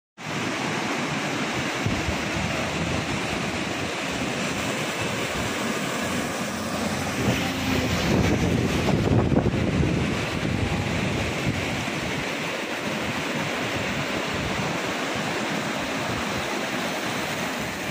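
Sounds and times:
river rushing: 0:00.2 - 0:17.9
wind buffeting microphone: 0:00.3 - 0:17.9
vehicle passing on wet road: 0:02.2 - 0:12.2.

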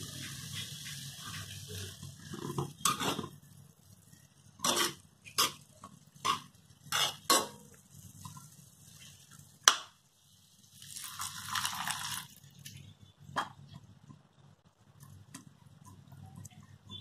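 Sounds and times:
metal spatula scraping wok: 0:00.0 - 0:03.5, 0:04.1 - 0:09.2.

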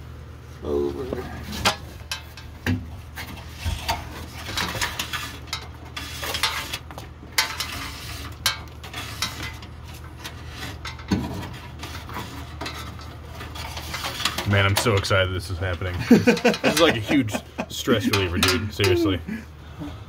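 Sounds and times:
wire scraping on sheet metal: 0:03.2 - 0:15.0.

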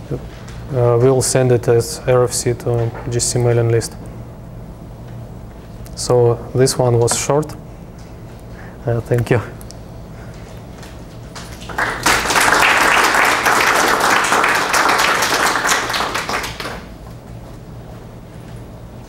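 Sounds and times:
audience applauding: 0:11.4 - 0:17.0.

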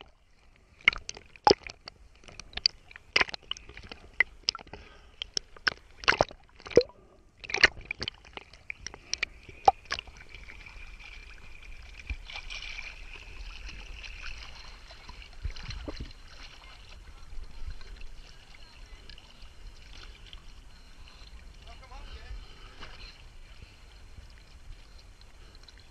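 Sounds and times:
water sloshing and splashing: 0:00.0 - 0:25.9.

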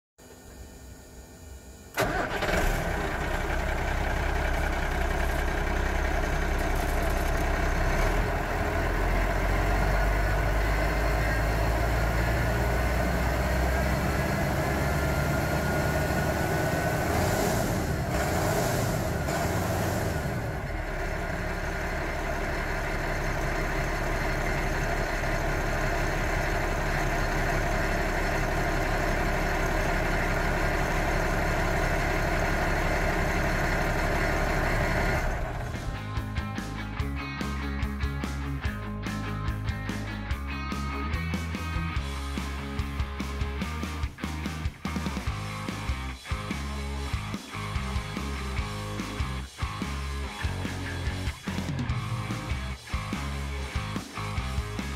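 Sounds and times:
diesel engine idling: 0:01.9 - 0:39.4.

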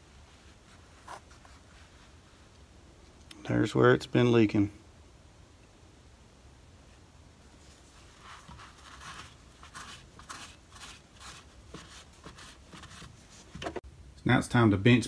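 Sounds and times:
cloth rag rubbing strokes: 0:00.0 - 0:02.5, 0:07.5 - 0:13.8.

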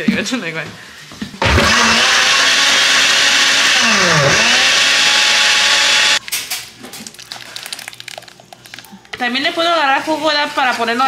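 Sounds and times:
blender running: 0:01.4 - 0:06.2.

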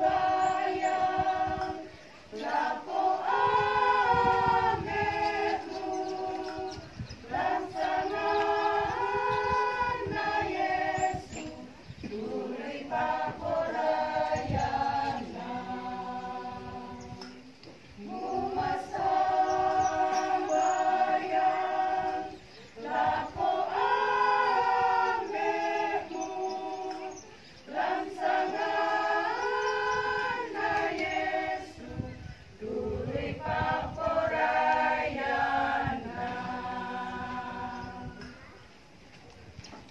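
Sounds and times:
choir singing a hymn: 0:00.0 - 0:38.6.

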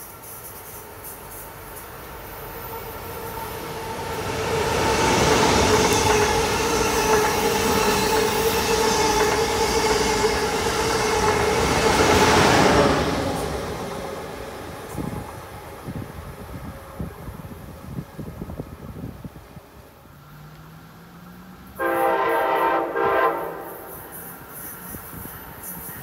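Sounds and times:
high-speed train passing: 0:00.0 - 0:26.0
wheels rumbling on rail: 0:00.0 - 0:26.0.

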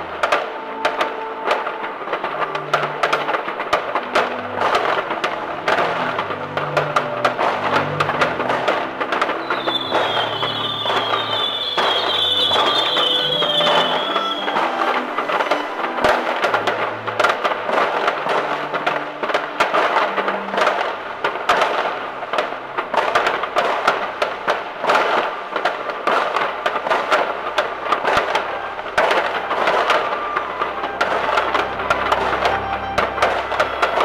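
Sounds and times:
firework bangs: 0:00.0 - 0:34.0
fireworks crackling and popping: 0:00.0 - 0:34.0.

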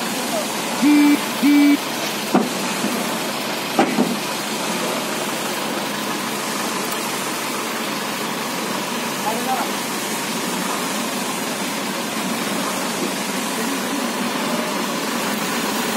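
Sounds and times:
crane engine and hydraulics running: 0:00.0 - 0:15.9
short beep: 0:00.8 - 0:01.8.

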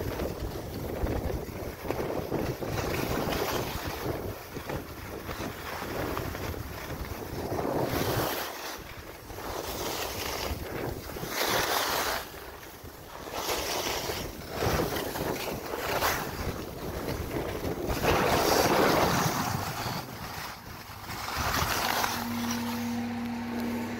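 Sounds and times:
wind buffeting microphone: 0:00.0 - 0:23.9
snow hissing under ski: 0:07.5 - 0:08.8, 0:09.4 - 0:16.4, 0:17.8 - 0:23.0.

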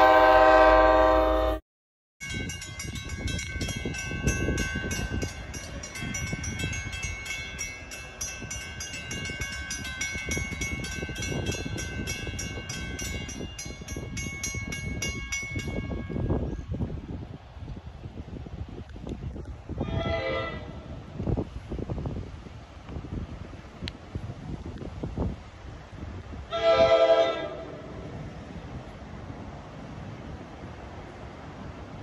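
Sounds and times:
railroad crossing bell ringing: 0:02.2 - 0:16.8.

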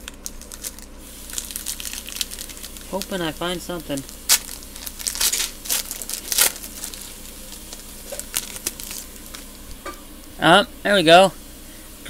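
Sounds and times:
plastic wrapper tearing and crinkling: 0:00.0 - 0:09.5.

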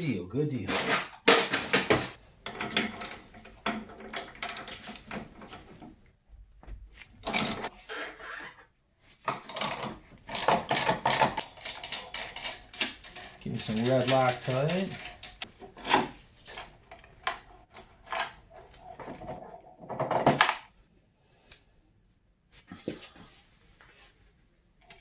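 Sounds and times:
metal chain parts clinking and rattling: 0:00.7 - 0:05.5, 0:07.2 - 0:07.7, 0:09.3 - 0:19.8.

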